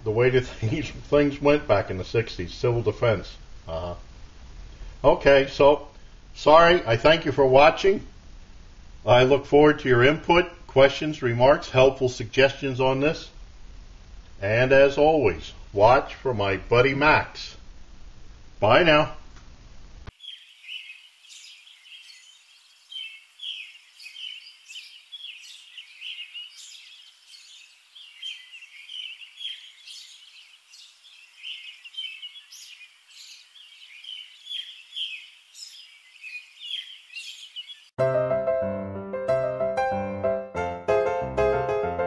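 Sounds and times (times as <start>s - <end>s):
faint room noise: 0.0s - 35.0s
small birds chirping: 20.1s - 38.0s.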